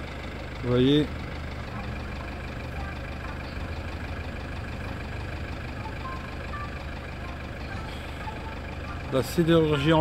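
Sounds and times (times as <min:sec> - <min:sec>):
vehicle engine rumbling: 0:00.0 - 0:10.0.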